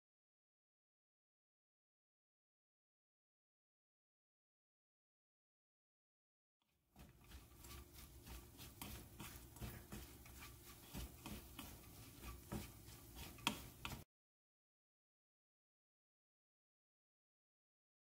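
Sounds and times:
wooden spatulas scraping wok: 7.0s - 14.0s.

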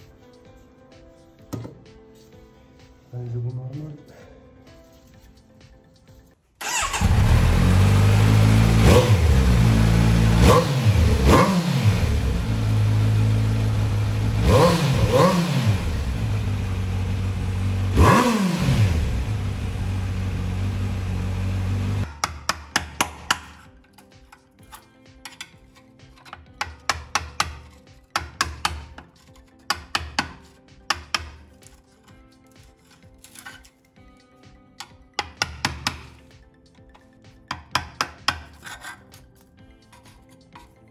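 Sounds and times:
loud motorcycle engine revving: 6.7s - 22.0s
screwdriver clicking and scraping: 23.3s - 34.0s, 36.9s - 40.9s.

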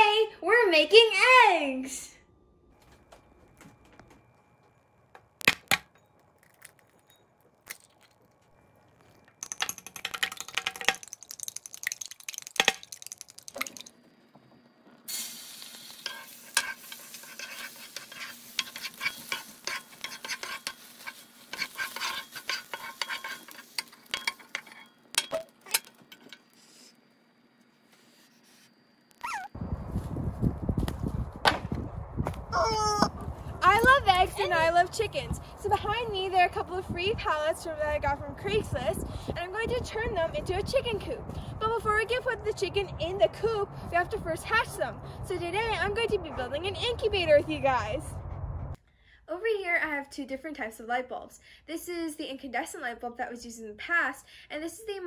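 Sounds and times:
egg cracking on bowl rim: 5.4s - 7.0s, 7.6s - 8.4s, 9.0s - 14.0s
egg sizzling in frying pan: 7.6s - 14.1s, 15.0s - 26.6s
egg clinking in bowl: 9.0s - 14.0s
spatula scraping pan: 15.6s - 25.0s
wind noise: 29.6s - 48.8s.

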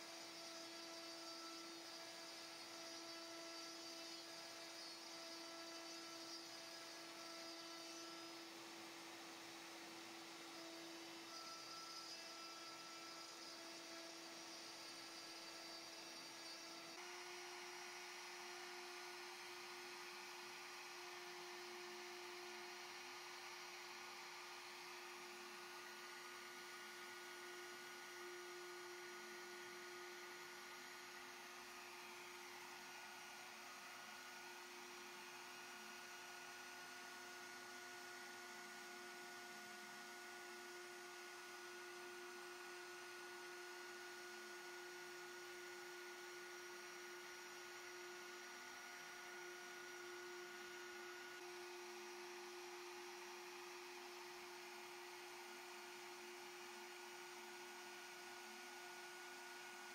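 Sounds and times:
router spindle whine: 0.0s - 59.9s.

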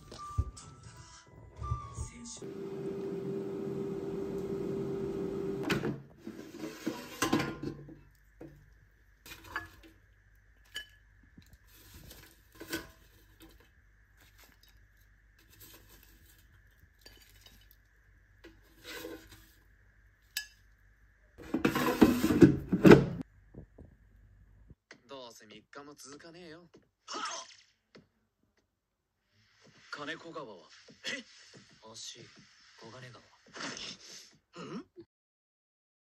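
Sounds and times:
air fryer fan humming: 2.4s - 6.0s.

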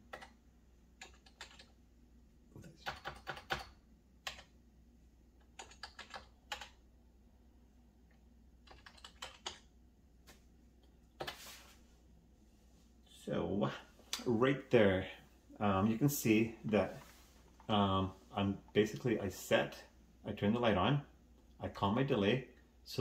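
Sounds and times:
keyboard typing clicks: 1.0s - 1.7s, 2.8s - 4.5s, 5.4s - 6.8s, 8.6s - 9.7s.

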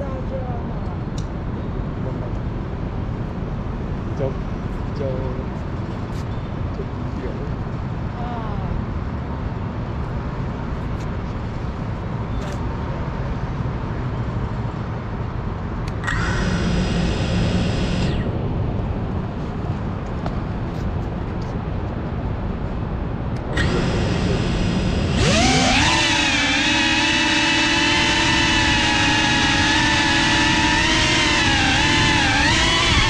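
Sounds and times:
city traffic hum: 0.0s - 33.0s
drone motors whining: 15.9s - 18.6s, 23.4s - 33.0s.

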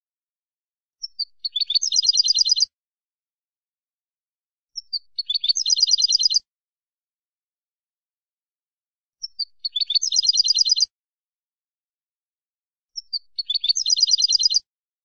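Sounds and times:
goldfinch singing trills: 1.0s - 2.7s, 4.8s - 6.4s, 9.2s - 10.9s, 13.0s - 14.6s.

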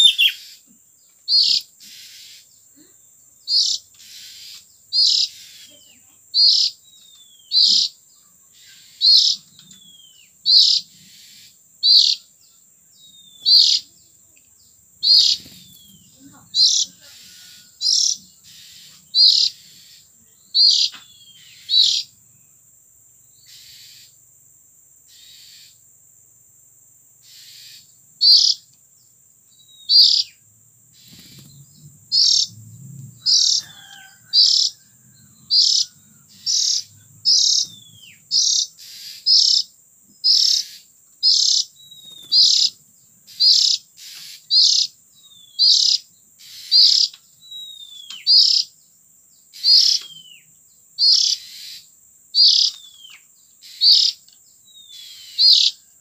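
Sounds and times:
bird giving harsh calls: 0.0s - 0.6s, 3.5s - 6.8s, 13.4s - 13.9s, 15.0s - 22.1s, 27.2s - 28.6s, 29.9s - 30.4s, 31.0s - 32.5s, 33.2s - 34.8s, 35.5s - 44.9s, 45.6s - 47.1s, 49.6s - 50.1s, 51.0s - 51.8s, 52.4s - 52.8s, 53.6s - 54.2s, 54.9s - 55.8s.

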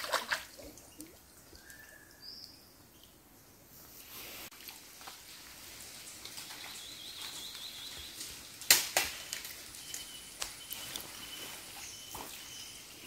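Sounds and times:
sharp splashes: 0.0s - 1.2s
water sloshing: 0.0s - 1.8s.

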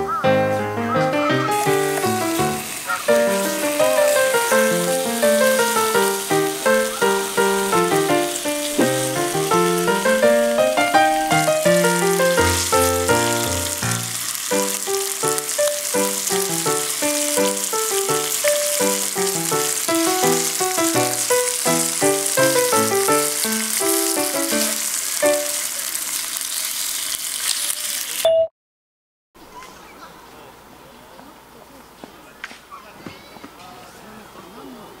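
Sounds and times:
melodic background music: 0.0s - 14.0s
meat sizzling in a frying pan: 1.4s - 28.2s.

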